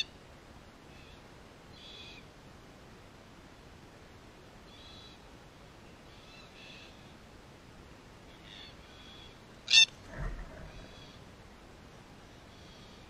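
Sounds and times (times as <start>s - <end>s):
soft bird calls: 4.6s - 7.2s, 8.2s - 11.4s
wing flaps: 9.9s - 11.1s.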